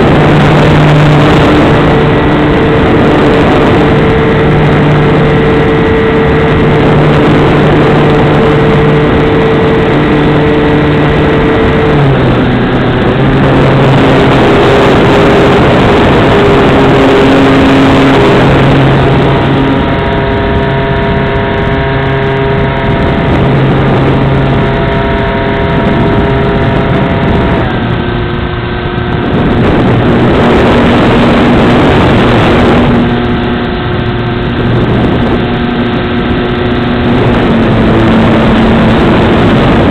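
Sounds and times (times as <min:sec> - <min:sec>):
air rushing over microphone: 0:00.0 - 0:39.9
model plane engine and propeller: 0:29.2 - 0:39.9.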